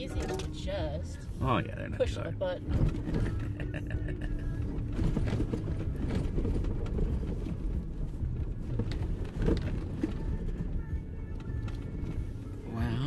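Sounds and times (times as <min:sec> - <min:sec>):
engine and tyre rumble: 0:00.0 - 0:13.0
knocks and rattles: 0:02.6 - 0:12.2.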